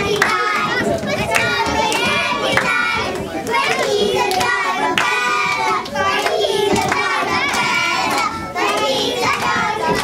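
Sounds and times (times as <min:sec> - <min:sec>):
children singing together: 0:00.0 - 0:10.0.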